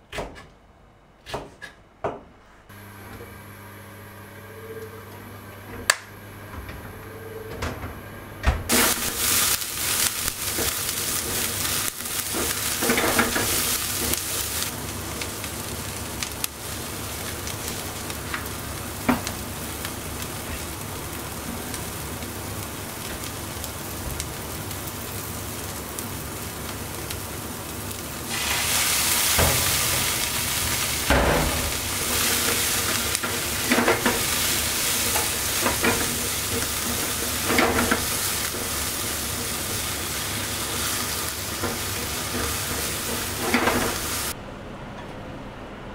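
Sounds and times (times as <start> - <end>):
peppers sizzling in hot oil: 8.7 - 44.4.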